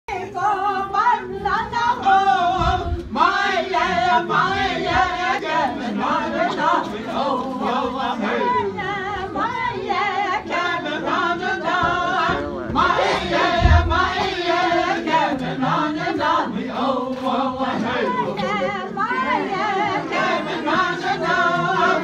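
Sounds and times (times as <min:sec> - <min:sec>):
crowd voices: 0:00.1 - 0:22.0
voices singing unaccompanied: 0:00.1 - 0:22.0
low thump: 0:02.5 - 0:03.2, 0:11.8 - 0:14.4.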